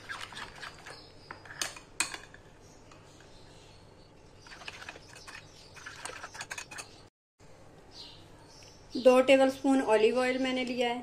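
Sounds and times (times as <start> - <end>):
spoon scraping ceramic bowl: 4.4 - 7.0.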